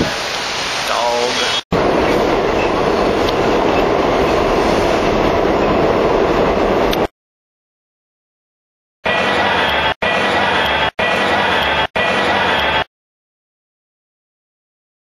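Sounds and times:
subway train running on track: 0.0s - 7.1s, 9.1s - 12.9s.

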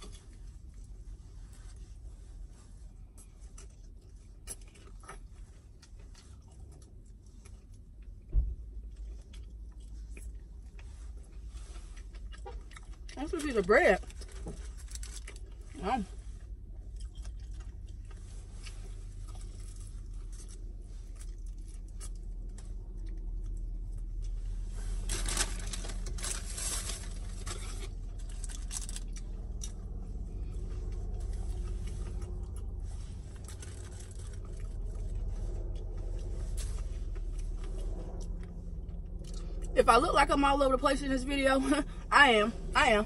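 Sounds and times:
chewing and crunching fried chicken: 0.0s - 39.8s
low steady hum: 0.0s - 43.0s.

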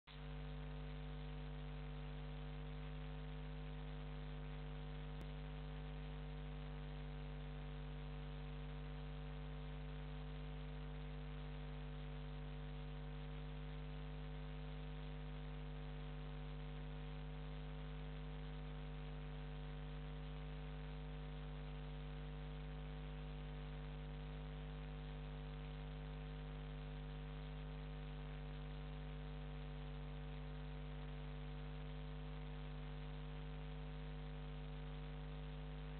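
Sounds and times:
electrical mains hum with hiss: 0.1s - 35.9s.

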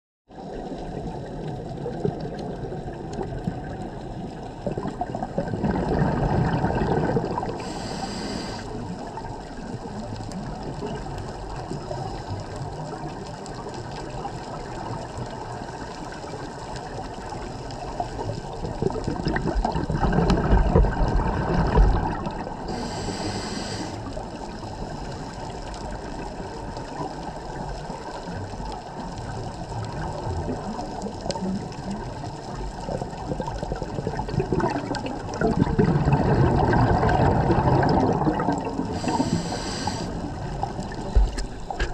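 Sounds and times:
underwater water noise: 0.3s - 41.9s
water surges: 0.3s - 41.9s
short high hiss: 7.7s - 8.7s, 22.7s - 24.1s, 39.0s - 40.2s.

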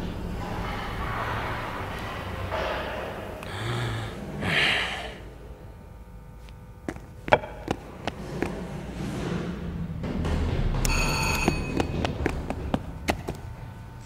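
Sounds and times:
man breathing out heavily: 3.4s - 5.6s.

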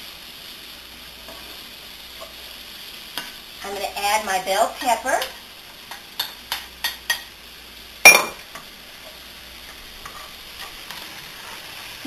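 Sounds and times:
vegetables sizzling: 0.0s - 12.0s
wooden spoon tapping skillet: 3.1s - 3.4s, 4.7s - 7.4s.

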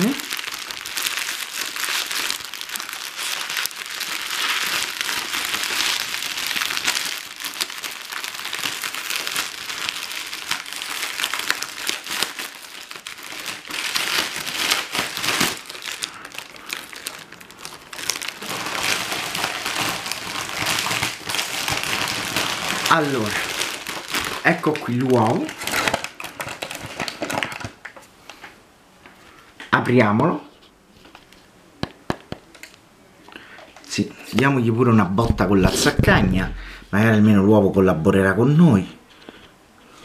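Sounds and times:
foil wrapping crinkling: 0.0s - 28.0s.

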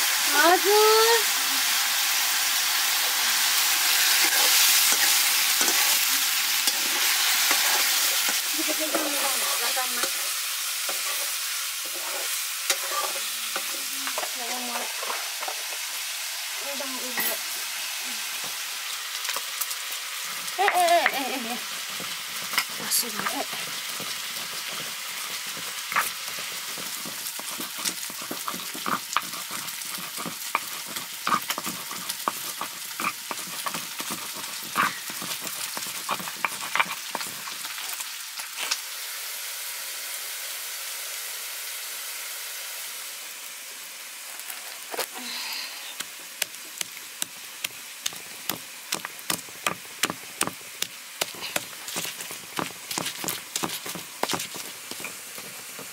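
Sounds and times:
meat sizzling in a pan: 0.0s - 55.9s
spoon scraping a pan: 6.6s - 15.6s, 21.7s - 37.9s.

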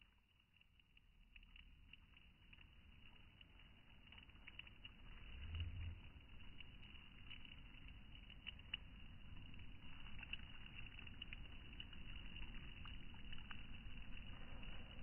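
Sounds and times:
faint small ticks and pattering: 0.0s - 15.0s
wind rumble on microphone: 2.5s - 15.0s.

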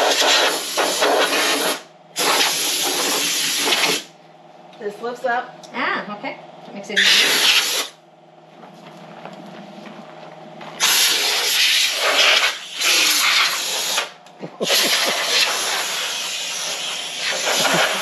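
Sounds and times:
compressed air hissing from blow gun: 0.0s - 4.1s, 7.0s - 8.0s, 10.8s - 18.0s.

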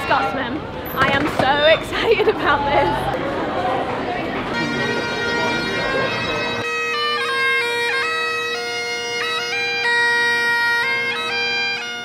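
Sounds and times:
bagpipes playing: 4.1s - 12.0s.

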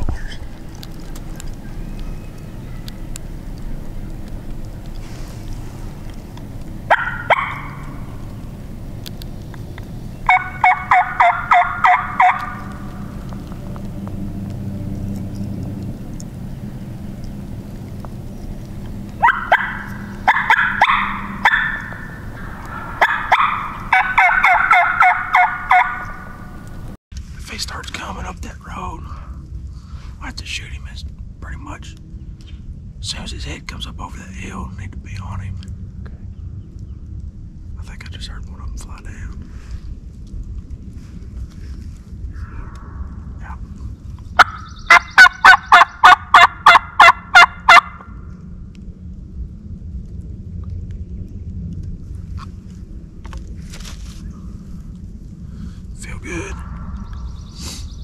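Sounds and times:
turkey call yelps: 6.9s - 8.2s, 10.2s - 13.0s, 19.2s - 26.6s, 44.4s - 48.0s.

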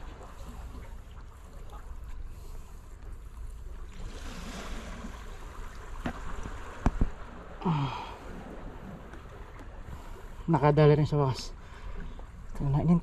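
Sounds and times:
sea washing against rocks: 3.8s - 11.3s.

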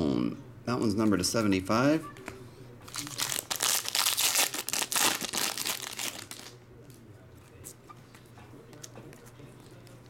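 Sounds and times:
foil wrapper tearing and rustling: 2.9s - 6.6s.

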